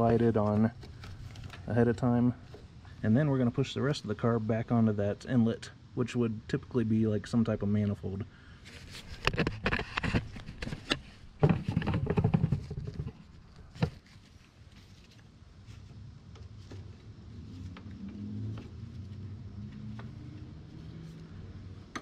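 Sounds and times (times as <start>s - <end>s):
plastic clicks and knocks: 9.2s - 14.0s.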